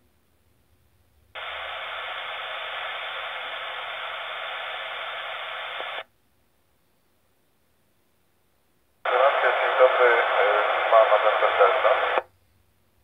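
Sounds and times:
radio static: 0:01.4 - 0:06.1, 0:09.1 - 0:12.3.

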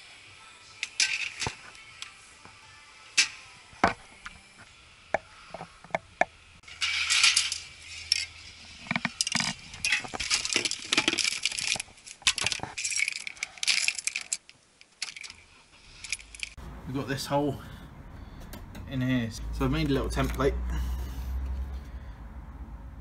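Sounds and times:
metal spray cans clinking: 0:00.8 - 0:01.7, 0:06.6 - 0:14.4.

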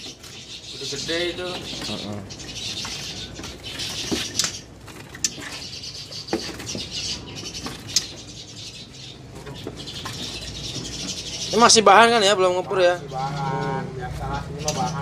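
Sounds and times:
songbirds twittering: 0:00.0 - 0:15.0.

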